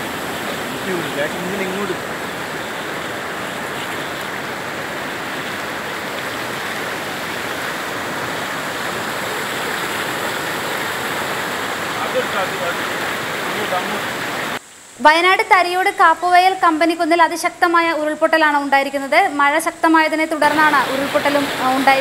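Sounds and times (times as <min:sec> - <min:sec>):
floodwater rushing: 0:00.0 - 0:14.6, 0:20.0 - 0:22.0.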